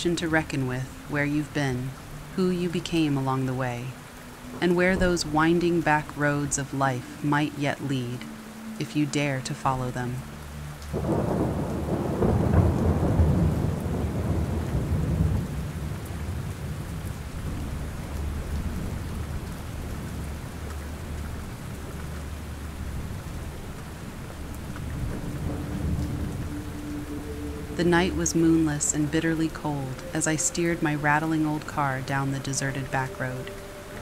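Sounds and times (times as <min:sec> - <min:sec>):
steady rain: 0:00.0 - 0:34.0
low roll of thunder: 0:10.9 - 0:20.4, 0:22.8 - 0:28.3.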